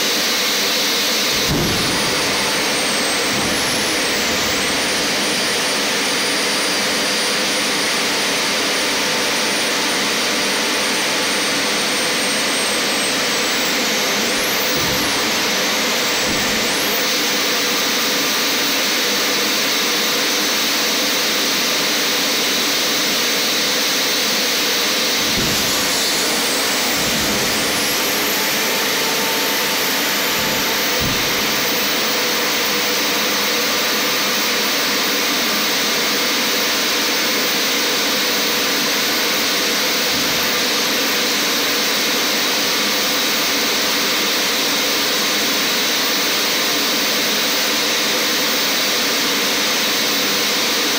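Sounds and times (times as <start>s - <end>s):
hydraulic pumps whining: 0.7s - 19.0s, 24.2s - 34.7s, 39.8s - 41.9s
landing gear knocks: 1.3s - 5.6s, 14.3s - 17.0s, 25.2s - 32.2s.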